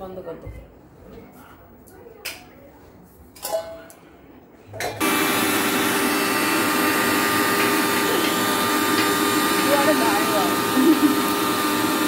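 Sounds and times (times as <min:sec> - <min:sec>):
electric motor whirring: 0:05.0 - 0:12.0.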